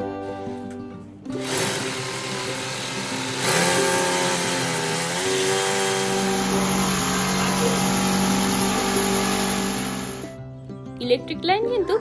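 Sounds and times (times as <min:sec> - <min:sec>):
electric drill running: 0:01.3 - 0:10.4.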